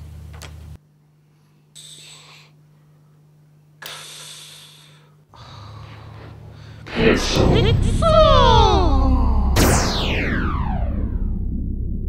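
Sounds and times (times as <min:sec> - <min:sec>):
low steady hum: 0:00.0 - 0:12.0
person breathing: 0:01.2 - 0:02.6, 0:03.8 - 0:07.0.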